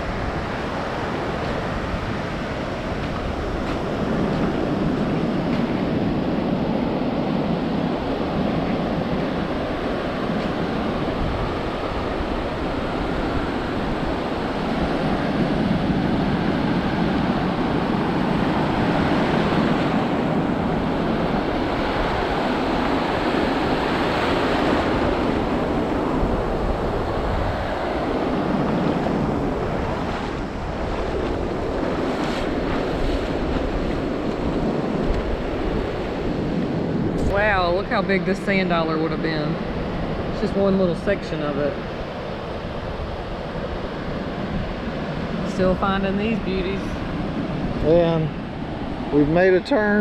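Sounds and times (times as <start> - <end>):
ocean surf on beach: 0.0 - 50.0
wind buffeting microphone: 0.0 - 50.0.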